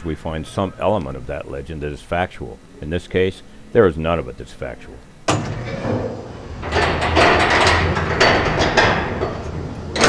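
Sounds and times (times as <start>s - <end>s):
steady low hum: 0.0s - 10.0s
elevator gate rattling and clanking: 5.3s - 10.0s.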